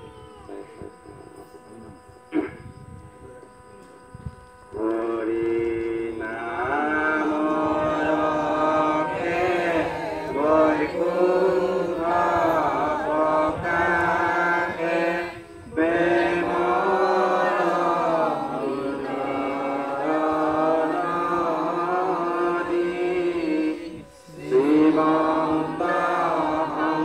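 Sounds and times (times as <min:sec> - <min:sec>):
voices chanting held notes: 0:00.0 - 0:27.0.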